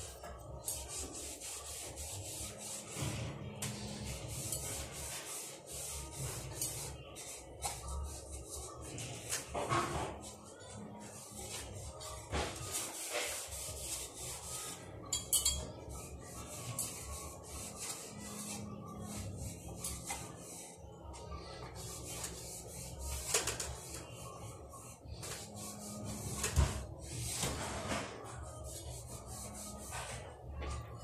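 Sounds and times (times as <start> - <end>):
cloth rubbing fan blades: 15.7 - 30.5.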